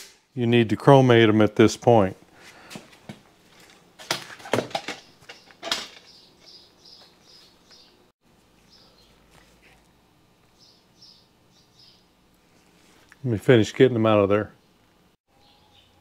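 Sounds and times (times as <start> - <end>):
small bird chirping: 5.4 - 8.0, 10.5 - 12.1, 14.6 - 16.0.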